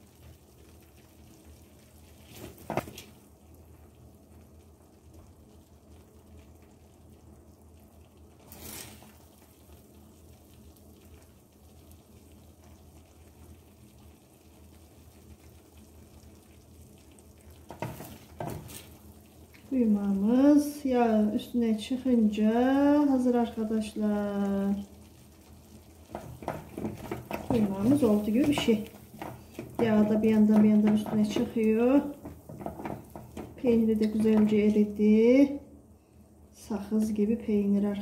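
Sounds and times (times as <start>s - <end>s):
food sizzling faintly in a pan: 0.0s - 38.0s
spoon scraping and knocking a pan: 17.7s - 18.9s, 26.1s - 34.8s.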